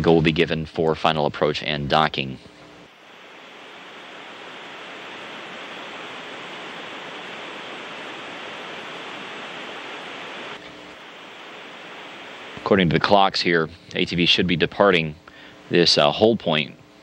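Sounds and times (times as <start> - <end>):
radio static hiss: 0.0 - 17.0.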